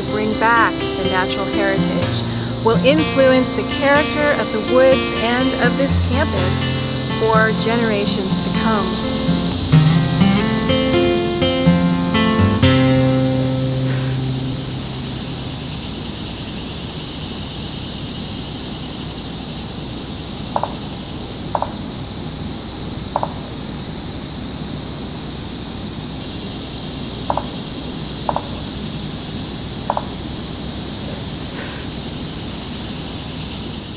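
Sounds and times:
low double calls: 0.0 - 16.5
steady high hiss: 0.0 - 33.9.

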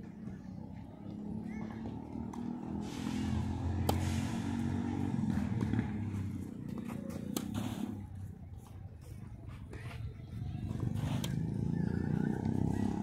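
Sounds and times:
tennis ball hit by racket: 3.6 - 8.3.

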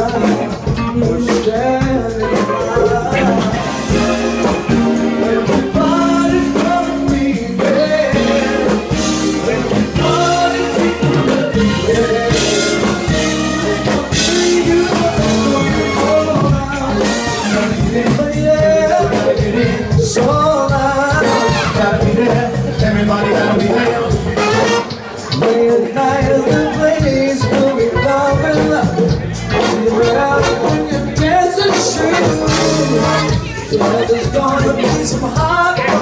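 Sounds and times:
live funk band: 0.0 - 36.0
person singing: 0.0 - 36.0
saxophone and trombone horns: 2.3 - 20.1, 21.0 - 25.4, 29.5 - 33.8.

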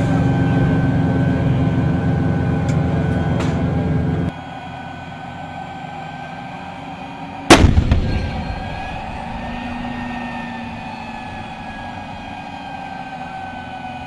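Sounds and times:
heavy vehicle engine running: 0.0 - 14.0
howitzer firing shot: 7.5 - 10.1.

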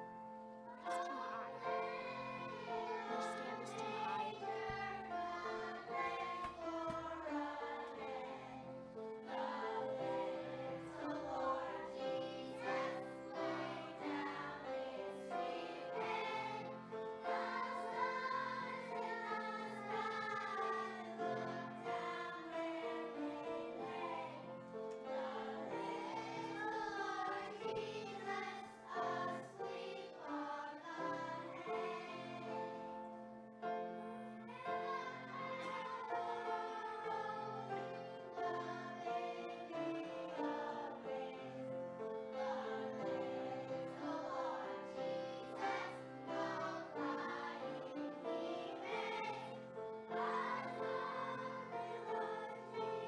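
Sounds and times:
children's choir singing: 0.0 - 53.0.

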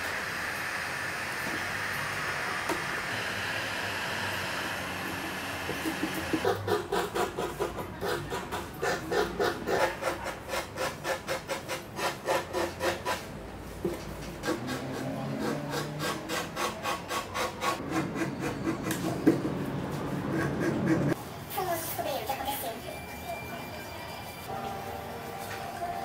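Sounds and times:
hand sanding wood: 14.3 - 19.2.

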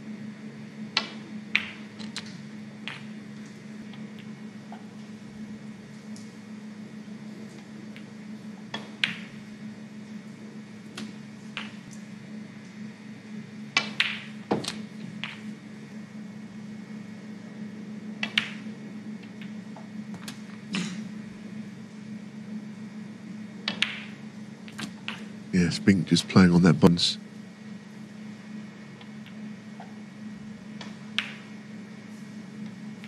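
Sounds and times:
low steady hum: 0.0 - 33.0
snooker balls clicking: 2.9 - 3.1, 11.0 - 12.0, 13.8 - 15.5, 18.2 - 19.6, 23.6 - 25.3, 30.8 - 31.5.

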